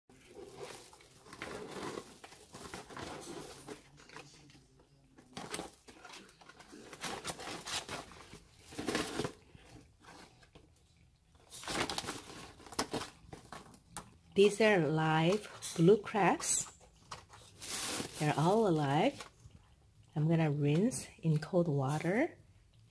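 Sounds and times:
paper bag crinkling: 0.1 - 4.4, 11.5 - 13.8, 17.3 - 19.3.

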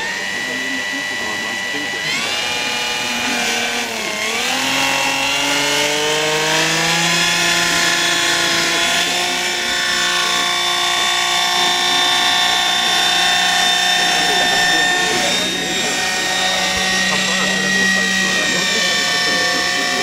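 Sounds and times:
model helicopter motor whirring: 0.0 - 20.0.

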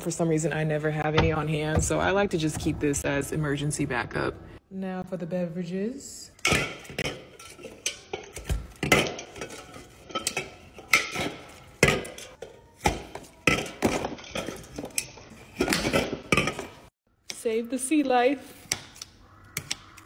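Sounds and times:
drink cans clinking and knocking: 6.4 - 16.9.

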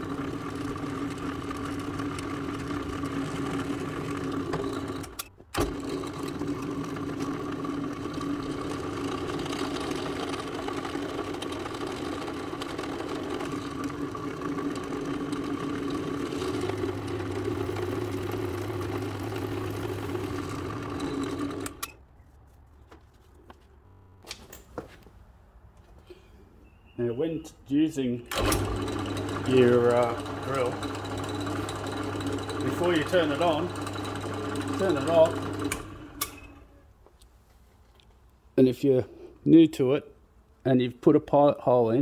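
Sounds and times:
drill bit drilling plastic: 0.0 - 21.9, 28.4 - 36.4
drill press motor running: 0.0 - 21.9, 28.3 - 36.7.

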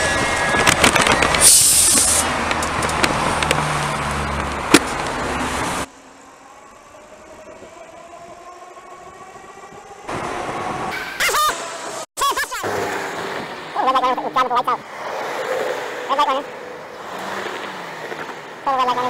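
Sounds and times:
bus engine running: 0.0 - 19.0
road noise: 0.0 - 19.0
traffic: 0.0 - 19.0
faint rising engine tone: 3.7 - 12.1.

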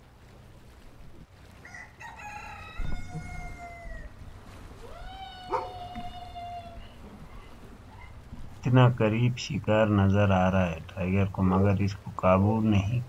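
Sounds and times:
rooster crowing: 1.6 - 4.2, 4.8 - 8.1.

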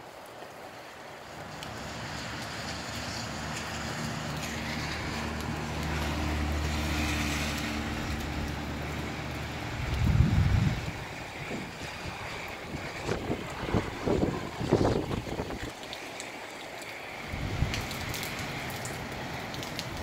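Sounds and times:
rain: 0.0 - 20.0
wind: 0.0 - 20.0
vehicle engine hum: 1.3 - 15.6
wind gust buffeting microphone: 9.4 - 15.8, 17.3 - 18.3.

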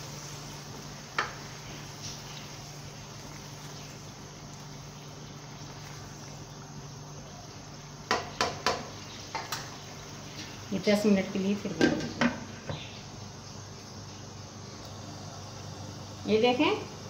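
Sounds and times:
low hum and hiss: 0.0 - 17.0
spoon knocking against pan: 8.1 - 9.6.

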